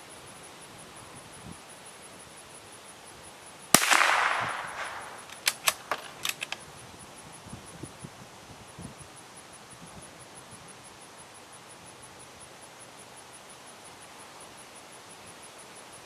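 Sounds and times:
rifle shot: 3.7 - 6.6
rifle bolt clicks: 3.8 - 6.6.

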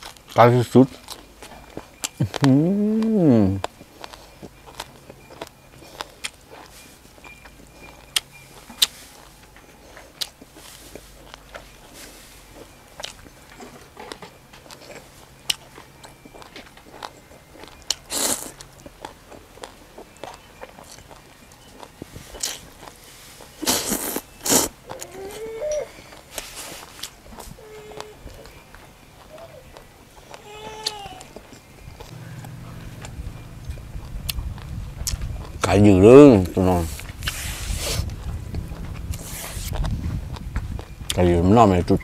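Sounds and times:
wet chewing clicks: 12.6 - 25.2, 26.0 - 41.2
loud slurping: 36.8 - 39.9.

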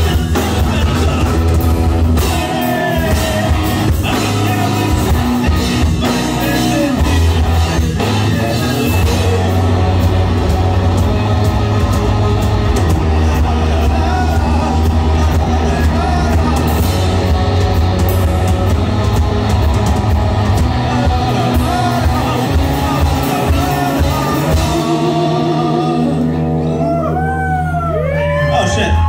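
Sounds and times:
drum kit: 0.0 - 27.0
bass guitar: 0.0 - 29.0
distorted electric guitar: 0.0 - 29.0
shouted vocal: 12.8 - 16.9, 26.0 - 29.0.

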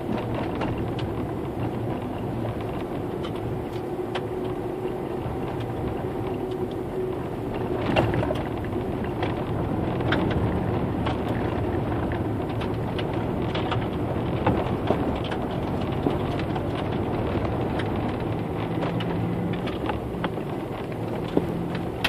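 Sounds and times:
engine and tyre rumble: 0.0 - 22.0.

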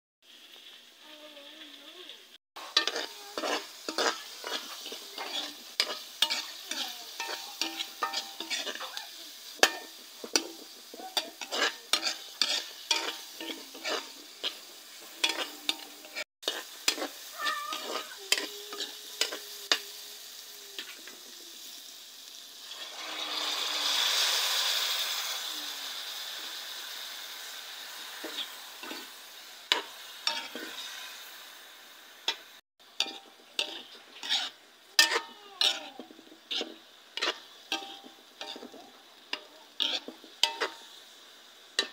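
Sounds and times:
meat sizzling in hot pan: 0.2 - 41.9
onions sizzling in oil: 0.2 - 41.9
spatula scraping frying pan: 2.6 - 20.0, 28.0 - 31.3, 32.3 - 41.0.

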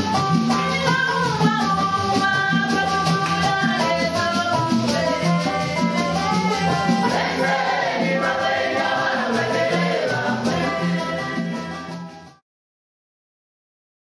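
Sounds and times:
banjo: 0.0 - 12.4
hand drums: 0.0 - 12.4
congregation singing a hymn: 4.8 - 12.1.

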